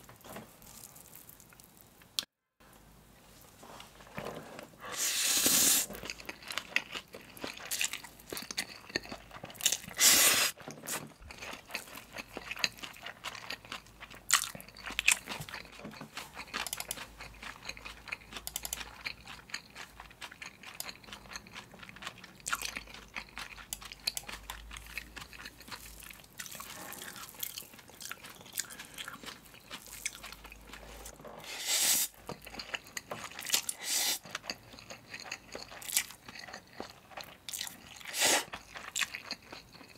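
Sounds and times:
person slurping noodles: 4.8s - 6.0s, 9.9s - 10.6s, 31.4s - 32.2s, 33.6s - 34.3s, 38.0s - 38.5s
crunchy chewing: 4.9s - 39.9s.

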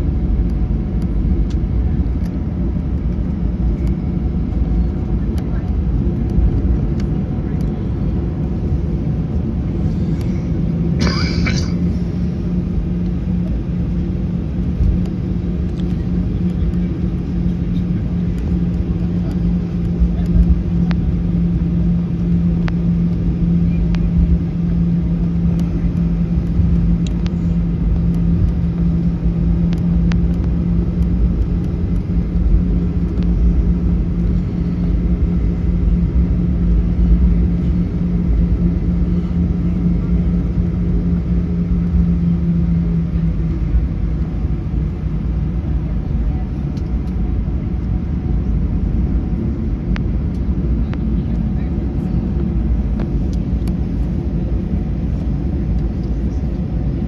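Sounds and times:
jet engines idling hum: 0.0s - 57.0s.

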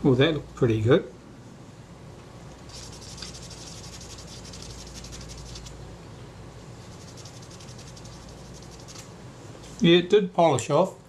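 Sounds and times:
rapid rubbing strokes: 2.6s - 5.8s, 6.6s - 9.2s.

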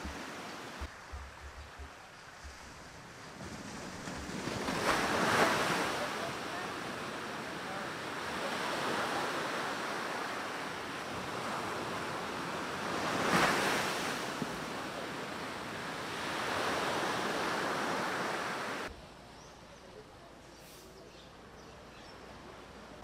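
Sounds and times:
waves breaking on sandy beach: 0.0s - 1.6s, 2.2s - 18.9s.

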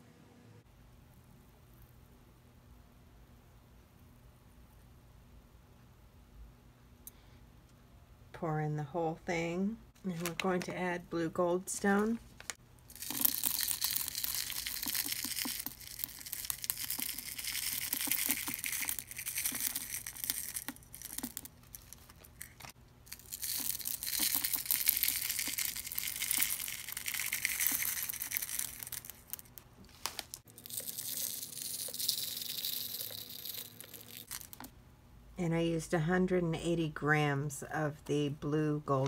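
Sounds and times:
small stones pouring rattle: 12.9s - 34.7s.

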